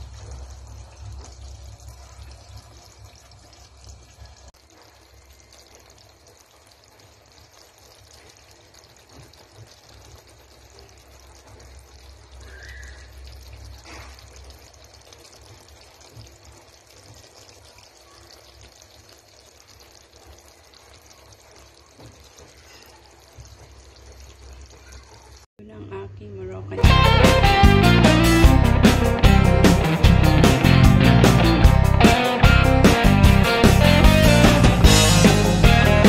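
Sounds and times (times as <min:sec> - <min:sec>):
sauce simmering with pops: 0:00.0 - 0:25.5.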